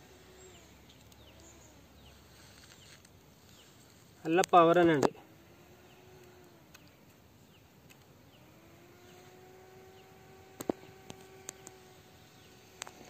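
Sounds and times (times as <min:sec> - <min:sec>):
small fan humming: 0:00.0 - 0:13.0
sharp clicks: 0:06.2 - 0:07.2, 0:10.6 - 0:11.8.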